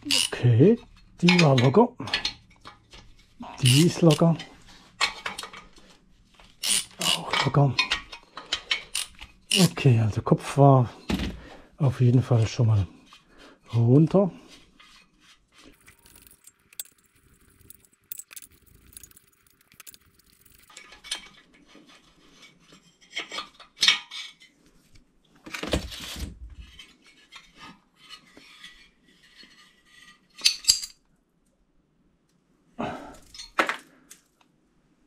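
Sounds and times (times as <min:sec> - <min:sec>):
metal tools clinking: 0:03.5 - 0:05.7, 0:15.7 - 0:21.4.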